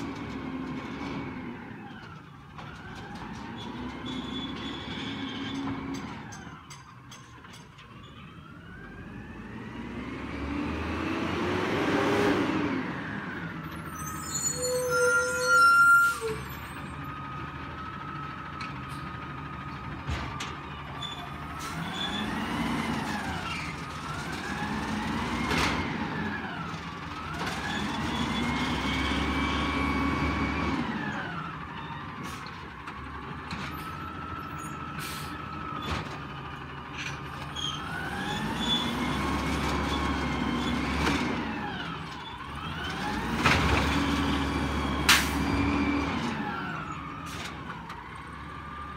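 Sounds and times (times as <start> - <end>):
truck engine revving: 9.0 - 13.6, 21.3 - 31.5.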